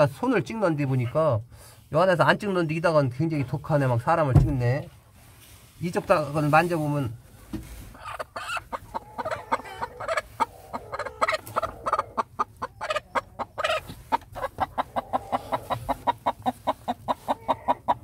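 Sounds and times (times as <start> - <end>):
hen clucking: 6.1 - 18.0.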